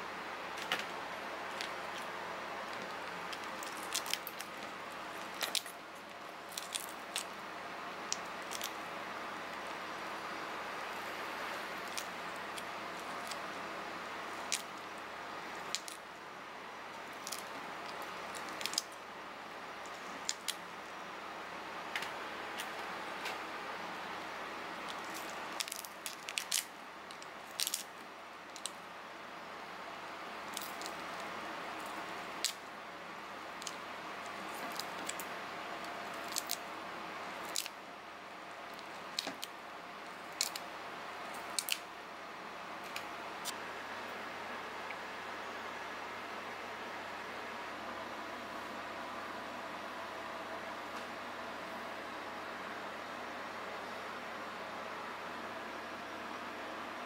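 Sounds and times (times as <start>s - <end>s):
steady background hiss: 0.0s - 57.0s
shell crackling and snapping: 2.7s - 5.8s, 6.5s - 7.4s, 8.1s - 8.8s, 11.8s - 13.4s, 14.4s - 14.9s, 15.6s - 16.0s, 17.1s - 19.0s, 19.8s - 20.6s, 24.9s - 28.8s, 30.5s - 32.7s, 33.6s - 36.6s, 37.4s - 37.8s, 38.7s - 39.6s, 40.3s - 40.7s, 41.3s - 41.9s.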